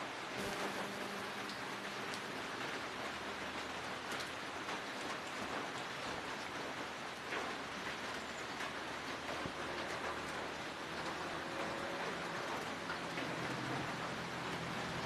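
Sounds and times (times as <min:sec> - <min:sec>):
steady hiss: 0:00.0 - 0:06.9.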